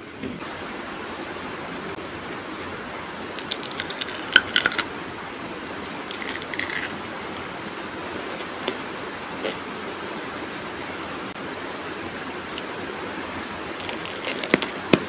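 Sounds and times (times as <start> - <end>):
steady hiss: 0.0 - 15.0
crunchy chewing of raw vegetable: 3.4 - 4.9, 6.1 - 7.0, 13.8 - 15.0.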